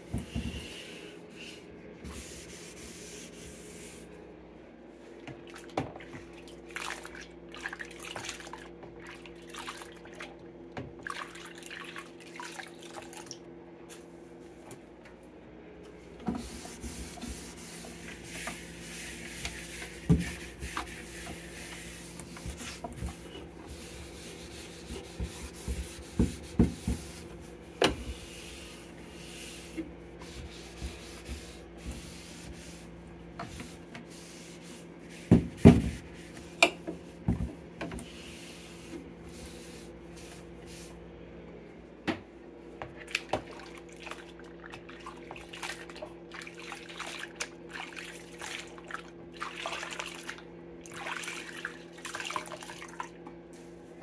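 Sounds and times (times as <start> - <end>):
cloth wiping plastic: 16.3 - 36.5.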